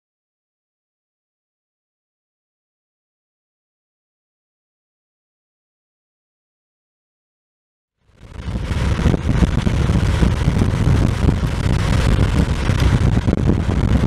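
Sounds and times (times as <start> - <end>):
gusty wind on microphone: 8.1 - 14.0.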